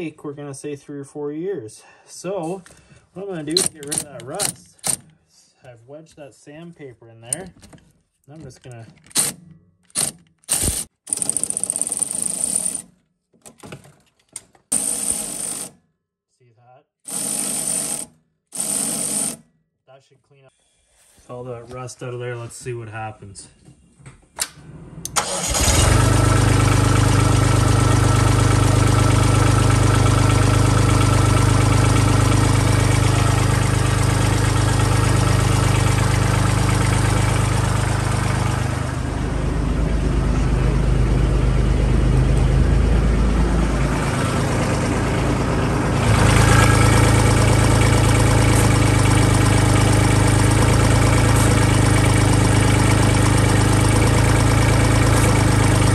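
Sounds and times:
diesel tractor engine starting: 24.5s - 55.9s.

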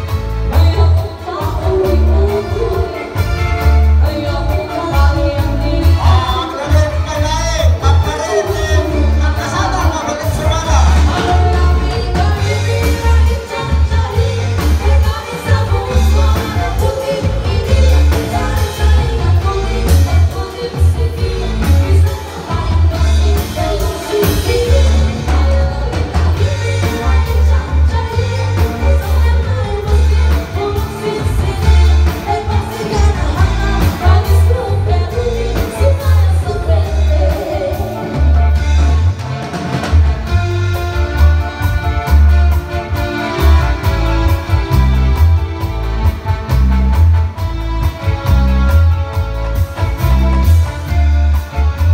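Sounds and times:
live band playing: 0.0s - 51.9s
women singing: 0.4s - 10.0s, 10.7s - 38.6s.

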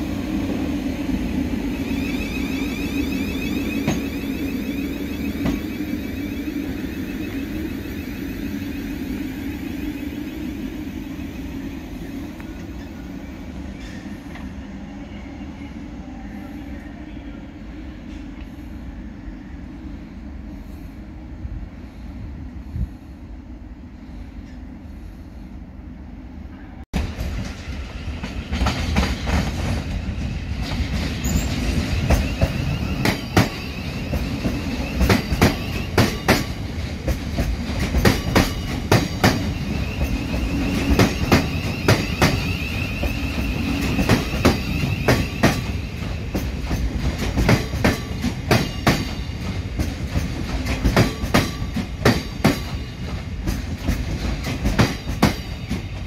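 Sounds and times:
train rumble: 0.0s - 56.0s
faint high whine: 1.6s - 13.0s.

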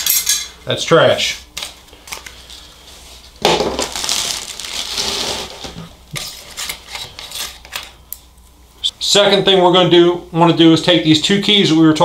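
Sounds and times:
plastic bag crackling: 3.4s - 6.1s.

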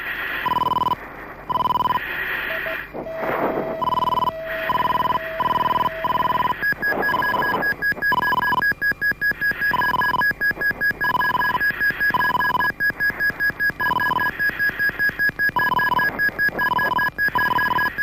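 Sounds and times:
cockpit warning beeps: 0.4s - 18.0s
higher quick pulsing beep: 2.5s - 7.6s.

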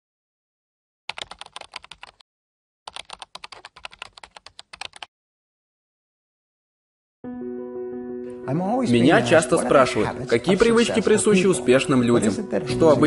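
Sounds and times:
keyboard typing clicks: 1.1s - 2.2s, 2.9s - 5.1s.

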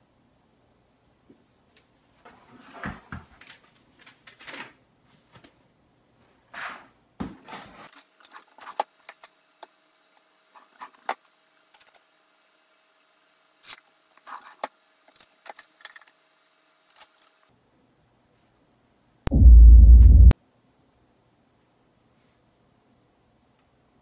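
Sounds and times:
items rustling and clattering: 2.1s - 5.6s.

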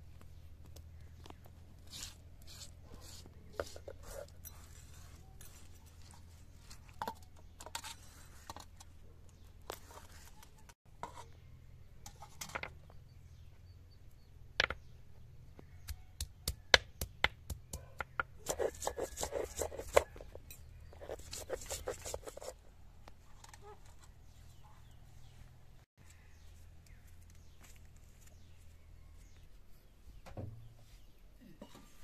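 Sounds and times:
grinding stone scraping on stone slab: 18.5s - 22.5s.

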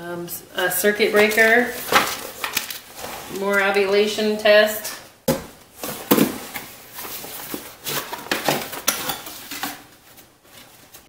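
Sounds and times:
knocks and rustles in cardboard box: 5.3s - 8.9s.

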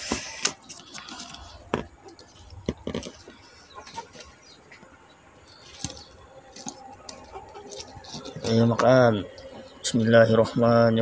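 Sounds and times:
chickens clucking: 0.1s - 11.0s.

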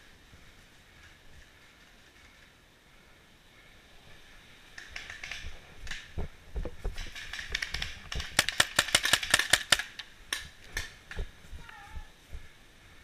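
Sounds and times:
clicks and thumps: 4.8s - 12.5s
paintball marker firing: 6.8s - 11.4s.

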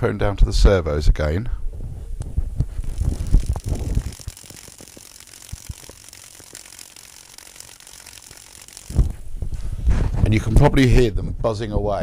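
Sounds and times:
servos buzzing and ticking: 2.6s - 9.4s.

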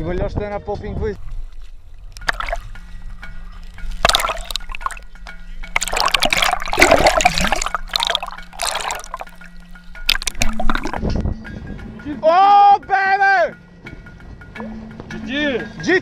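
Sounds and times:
sea water splashing and gurgling: 1.3s - 2.8s, 3.8s - 11.2s.

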